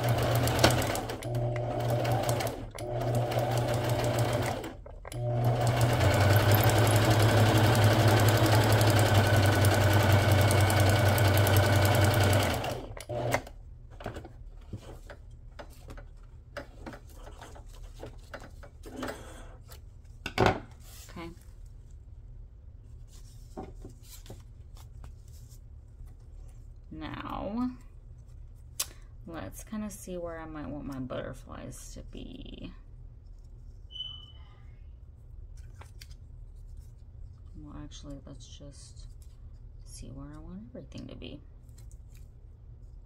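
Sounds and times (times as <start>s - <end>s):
sewing machine stitching: 0.0s - 13.5s
rustling of material: 12.0s - 28.8s.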